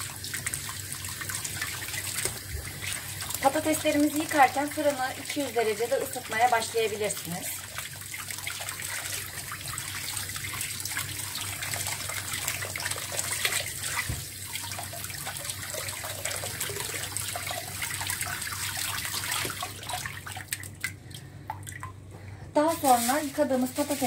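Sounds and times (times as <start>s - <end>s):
hands scrubbing potatoes: 0.0s - 14.4s, 22.6s - 24.0s
tap water running: 0.0s - 24.0s.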